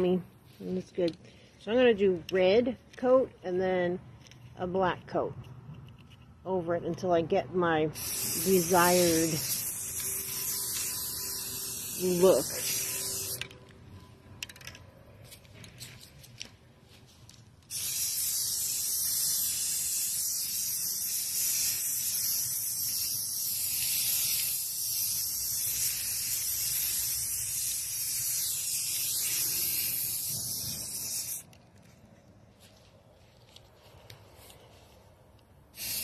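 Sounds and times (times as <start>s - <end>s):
spray paint can hissing: 8.0s - 13.5s, 17.6s - 31.6s, 35.7s - 36.0s.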